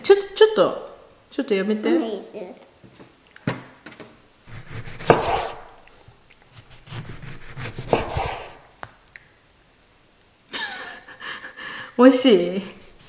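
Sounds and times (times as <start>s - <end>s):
knife sawing through oranges: 4.5s - 5.9s, 6.5s - 8.6s
knife knocking on board: 4.9s - 5.8s.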